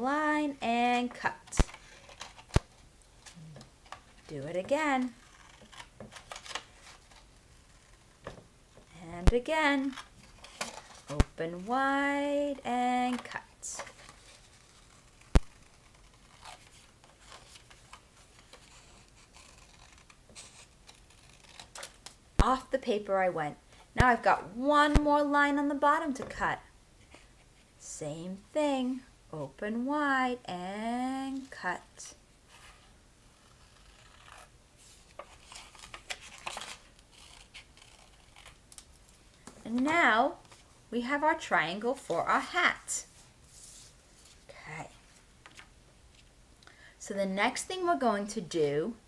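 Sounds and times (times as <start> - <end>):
scissors cutting paper: 18.4 - 21.9, 35.2 - 38.6
paper rustling: 33.7 - 39.1.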